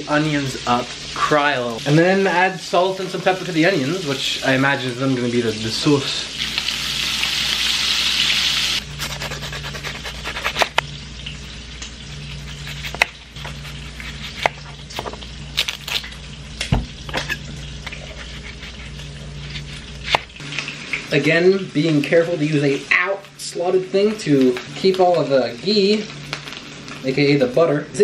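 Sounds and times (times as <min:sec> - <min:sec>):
bacon sizzling in a frying pan: 0:00.0 - 0:28.0
knife cutting on wooden board: 0:09.0 - 0:10.8, 0:17.2 - 0:20.3.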